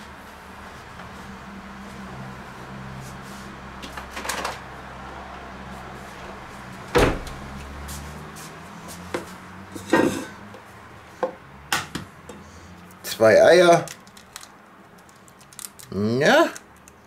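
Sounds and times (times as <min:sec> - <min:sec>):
door bang: 0:06.9 - 0:07.4.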